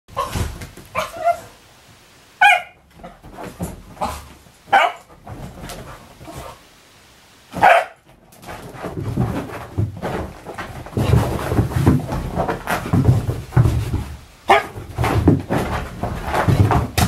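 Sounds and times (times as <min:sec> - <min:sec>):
dog barking: 0:00.2 - 0:01.6, 0:02.4 - 0:02.8, 0:04.0 - 0:05.1, 0:07.6 - 0:08.0, 0:14.5 - 0:14.8.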